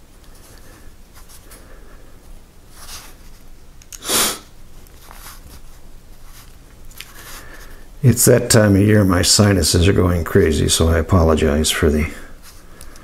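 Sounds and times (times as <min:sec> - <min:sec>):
man sniffing: 0:03.9 - 0:04.5.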